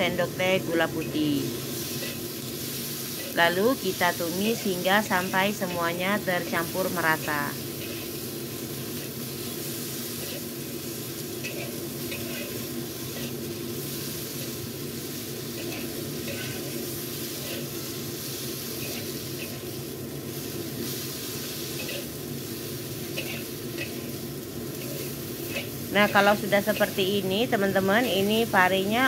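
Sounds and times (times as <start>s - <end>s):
vegetables sizzling in a wok: 0.0s - 29.0s
metal spatula scraping a pan: 11.4s - 13.4s, 15.5s - 17.9s, 18.7s - 19.7s, 20.8s - 22.1s, 23.0s - 27.0s.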